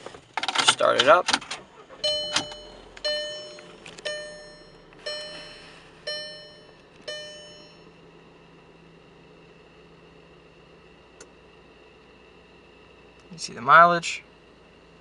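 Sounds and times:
faint low hum: 1.7s - 15.0s
dashboard warning chime: 2.0s - 8.1s.

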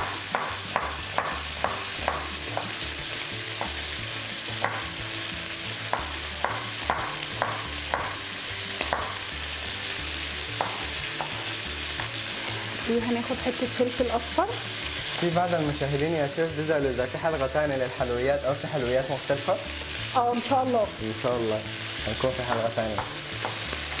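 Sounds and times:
knife chopping on wooden board: 0.0s - 2.8s, 3.6s - 3.8s, 4.6s - 4.9s, 5.9s - 8.2s, 8.8s - 9.2s, 10.6s - 12.2s, 22.5s - 23.6s
frying pan sizzling: 0.0s - 24.0s.

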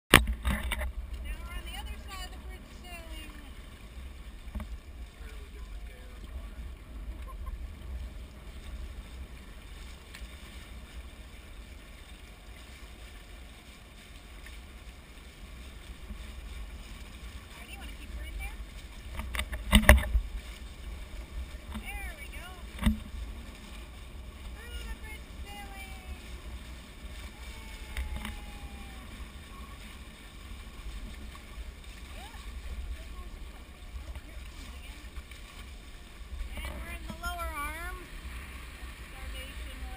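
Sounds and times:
water rushing along hulls: 0.1s - 39.9s
wind rumbling on microphone: 0.1s - 39.9s
faint clicks: 19.0s - 20.2s, 27.7s - 28.8s.

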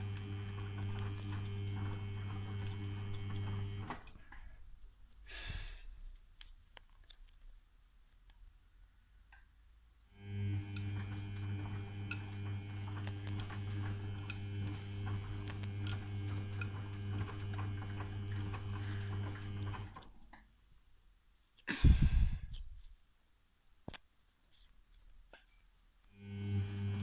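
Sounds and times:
washing machine drum turning: 0.0s - 4.1s, 10.5s - 20.0s.

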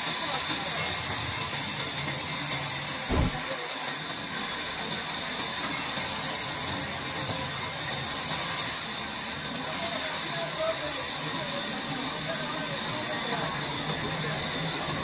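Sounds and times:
dull thump: 3.1s - 3.4s.

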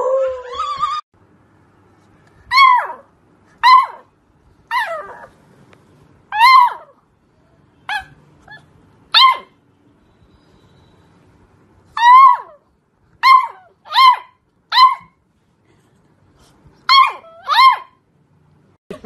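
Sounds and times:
puppy yapping barks: 2.5s - 4.1s, 6.3s - 7.0s, 7.9s - 9.6s, 12.0s - 12.6s, 13.2s - 15.2s, 16.9s - 18.0s.

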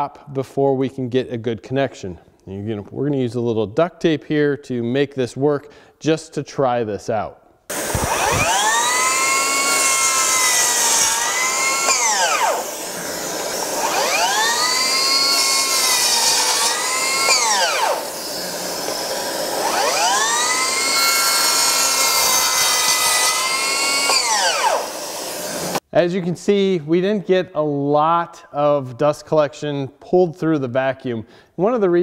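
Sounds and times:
miter saw cutting wood: 7.7s - 25.8s
shop vacuum running: 7.7s - 25.8s.

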